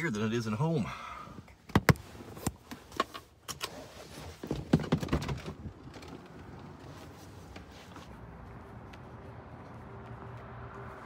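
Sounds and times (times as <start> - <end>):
clothing rubbing against phone: 6.8 - 8.4.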